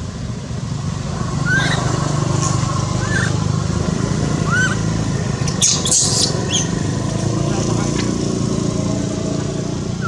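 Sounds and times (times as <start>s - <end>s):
animal high chirps: 1.4s - 1.9s, 4.4s - 4.9s, 5.5s - 6.8s.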